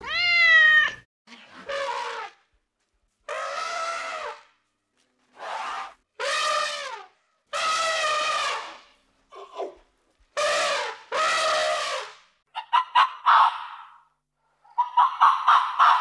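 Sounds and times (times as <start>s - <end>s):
elephant trumpeting: 1.3s - 2.4s, 3.3s - 4.4s.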